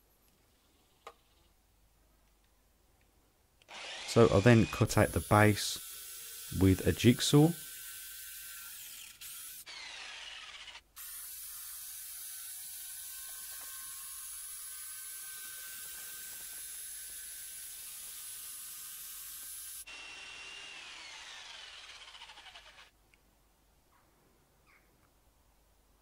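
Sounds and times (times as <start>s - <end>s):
jigsaw cutting plywood: 3.7s - 6.9s, 7.5s - 22.9s.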